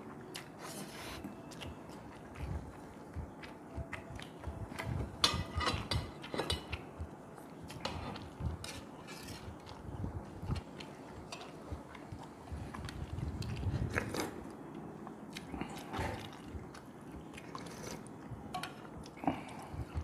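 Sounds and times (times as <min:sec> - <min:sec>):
spoon and dishes clinking: 0:04.8 - 0:06.8.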